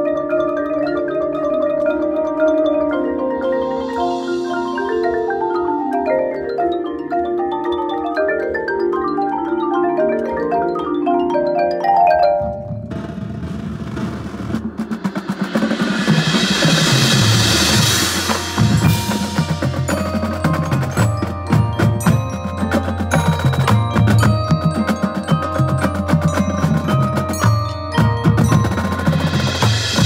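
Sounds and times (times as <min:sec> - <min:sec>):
marimbas and vibraphones playing runs: 0:00.0 - 0:30.0
drum roll: 0:12.4 - 0:30.0.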